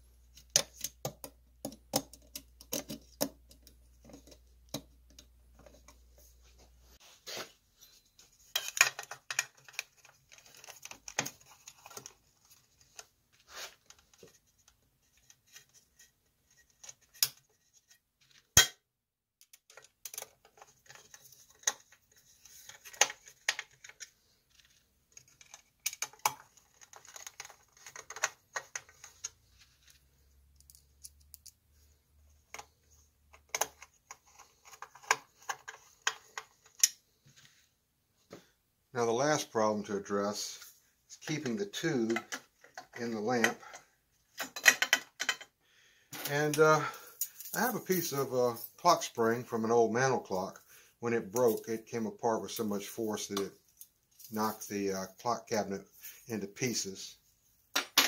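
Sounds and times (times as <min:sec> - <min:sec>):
plastic parts clicking and scraping: 0:00.3 - 0:06.0, 0:08.3 - 0:18.6, 0:19.4 - 0:37.3, 0:40.3 - 0:49.1.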